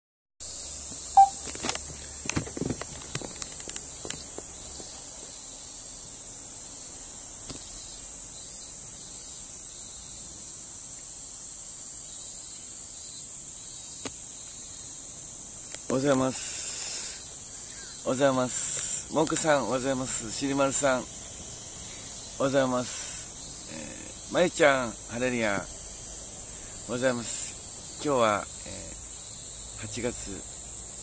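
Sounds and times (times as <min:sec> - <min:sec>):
cicadas shrilling: 0:00.4 - 0:31.0
short loud high tone: 0:01.2 - 0:01.4.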